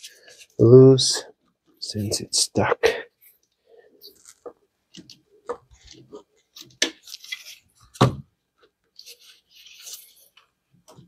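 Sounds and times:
rustling: 4.0 - 8.0, 8.8 - 11.0.

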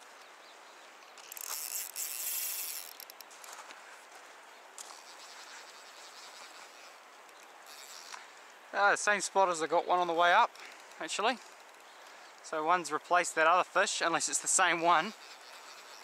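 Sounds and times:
faint river hiss: 0.0 - 16.0
fishing reel ratchet clicking: 1.2 - 3.3, 7.3 - 8.2, 15.0 - 16.0.

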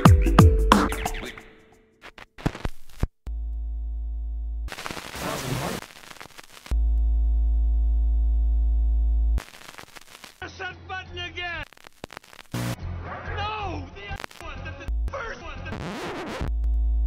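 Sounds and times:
soundtrack music: 0.0 - 1.5
low electronic buzzing tone: 3.3 - 4.8, 6.7 - 9.9, 14.9 - 15.2, 16.4 - 17.0.

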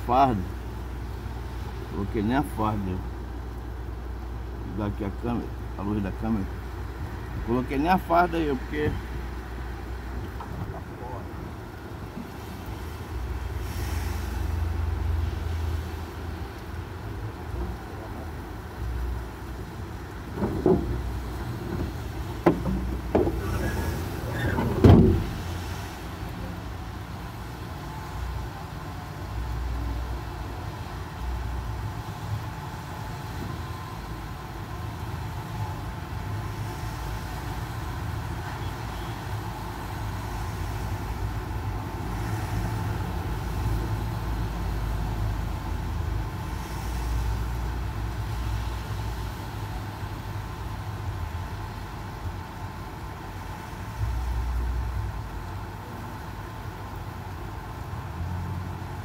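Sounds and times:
knocks and clunks: 10.2 - 11.0, 20.2 - 25.6
car engine idling: 16.4 - 25.6.

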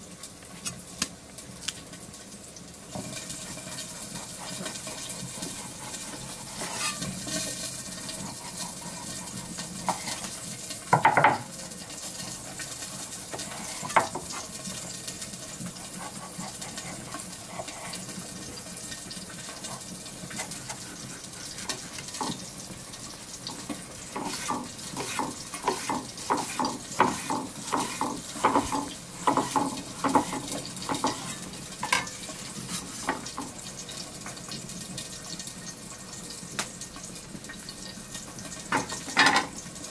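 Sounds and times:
slicing strokes tapping board: 23.6 - 31.2.

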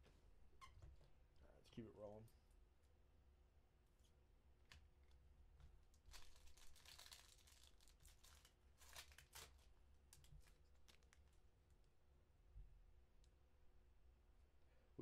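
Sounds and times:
wrappers tearing and crinkling: 6.0 - 11.4.

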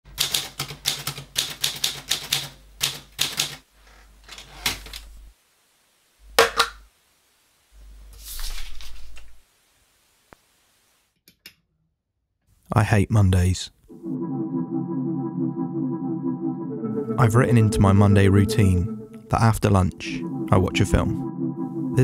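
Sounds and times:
typewriter keys striking: 0.2 - 3.6.

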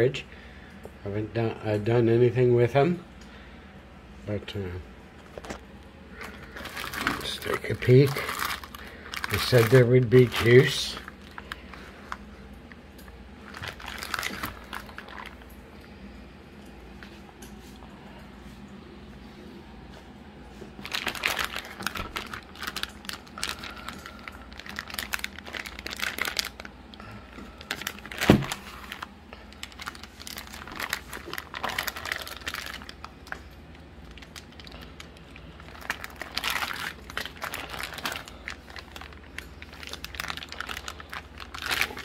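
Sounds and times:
plastic bags crinkling: 5.2 - 15.6, 20.7 - 42.0.

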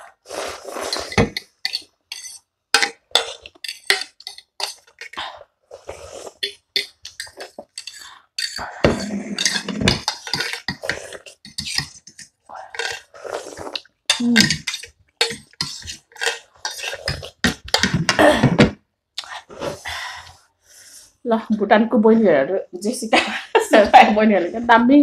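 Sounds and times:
people slurping noodles: 0.0 - 1.4, 5.0 - 18.6
forks scraping on plates: 0.4 - 5.2, 5.8 - 18.0.

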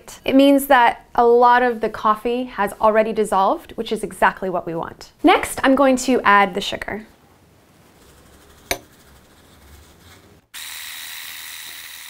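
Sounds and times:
electric mixer whirring: 10.6 - 12.0.

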